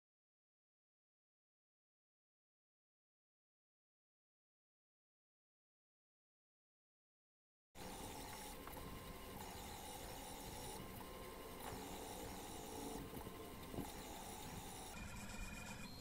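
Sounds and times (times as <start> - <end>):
faint motor whine: 7.8 - 16.0
pen plotter motors running: 7.8 - 16.0.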